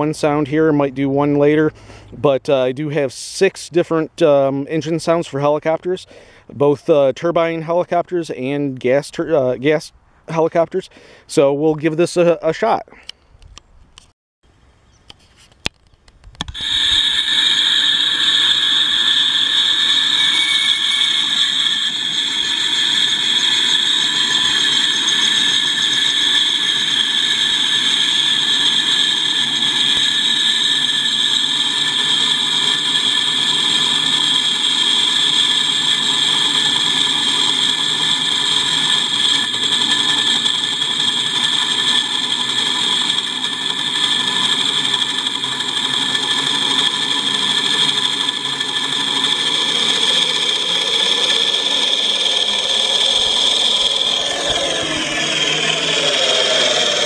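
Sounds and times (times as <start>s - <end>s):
quadcopter propellers spinning: 16.4s - 57.0s
simulated helicopter engine hum: 16.6s - 57.0s.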